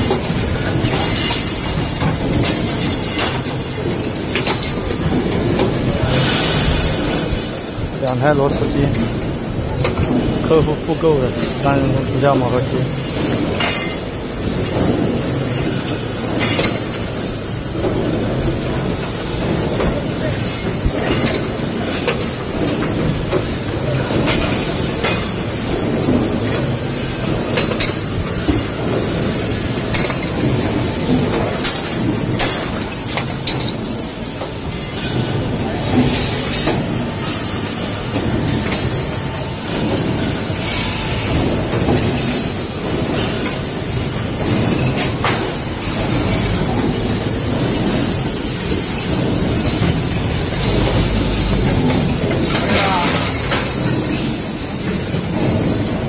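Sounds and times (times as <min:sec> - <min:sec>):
riveting machine and conveyor running: 0:00.0 - 0:56.0
riveting machine rumbling: 0:45.6 - 0:56.0.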